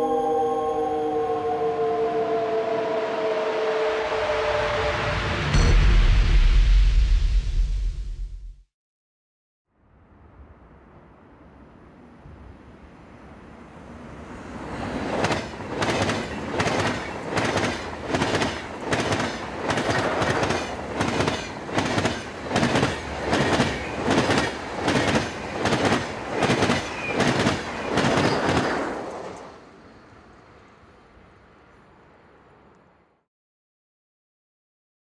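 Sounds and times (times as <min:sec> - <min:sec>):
train wheels on rails: 0:13.9 - 0:31.0
rhythmic clickety-clack: 0:15.2 - 0:28.9.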